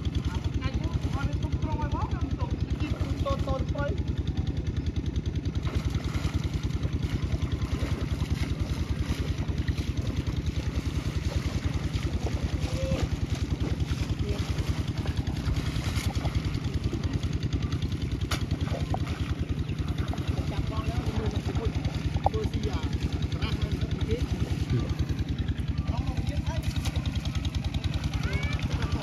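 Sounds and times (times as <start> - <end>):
small engine chugging: 0.0 - 29.0.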